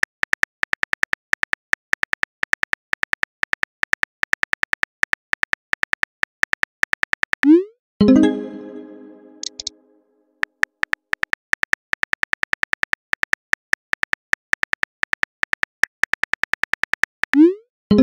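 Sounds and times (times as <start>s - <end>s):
pitched message tone: 8.0s - 9.8s.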